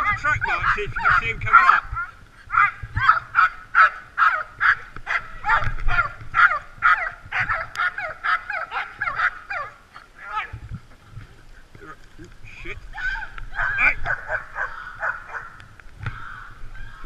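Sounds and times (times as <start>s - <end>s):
dogs barking and yelping: 0.1s - 10.7s, 12.9s - 15.7s.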